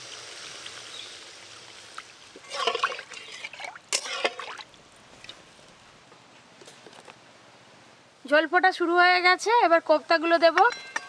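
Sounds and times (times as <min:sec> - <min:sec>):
water pouring into a pan: 0:00.0 - 0:04.8
metal ladle scraping a pan: 0:02.4 - 0:04.6.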